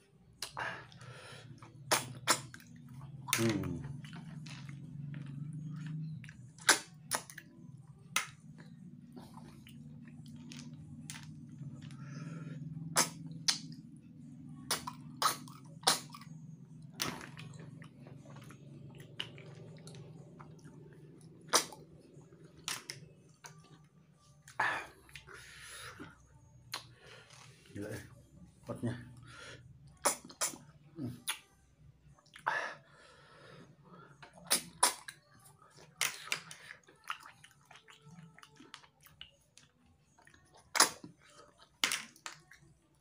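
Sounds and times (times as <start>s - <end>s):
steady low hum: 0.0s - 30.0s
mouth slurping snails: 0.4s - 7.3s, 9.0s - 23.0s, 29.4s - 31.4s, 34.2s - 35.2s.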